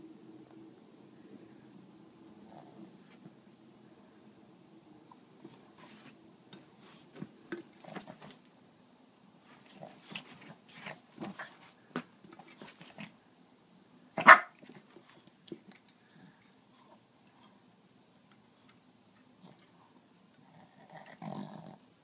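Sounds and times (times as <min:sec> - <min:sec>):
puppy play growls: 0:02.4 - 0:03.2, 0:20.4 - 0:21.9
puppy barking: 0:14.2 - 0:14.6.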